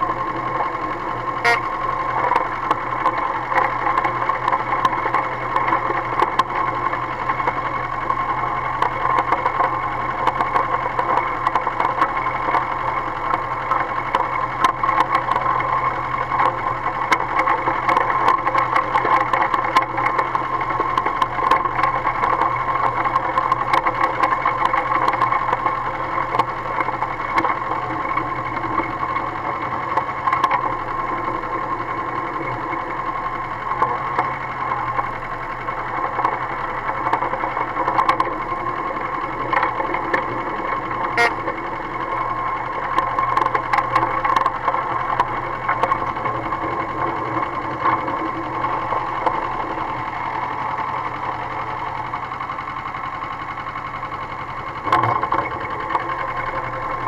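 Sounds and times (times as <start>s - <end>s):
small rail truck engine running: 0.0s - 57.0s
sharp clicks and knocks: 1.4s - 8.2s, 8.8s - 28.3s, 29.9s - 30.7s, 35.9s - 41.6s, 42.7s - 46.8s.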